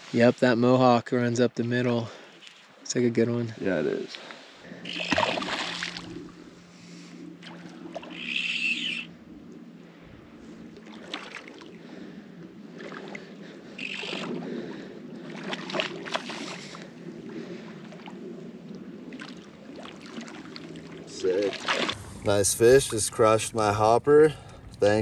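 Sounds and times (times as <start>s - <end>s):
water sloshing: 4.1s - 23.0s
fish splashing at water surface: 4.8s - 6.2s, 13.8s - 14.4s, 21.5s - 22.0s.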